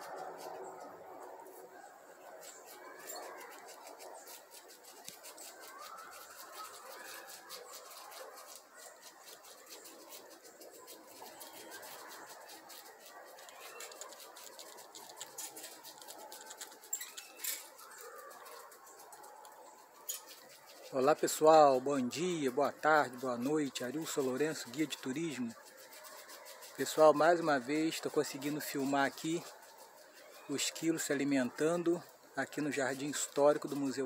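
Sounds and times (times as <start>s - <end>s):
squirrel gnawing nut shell: 11.2s - 20.9s.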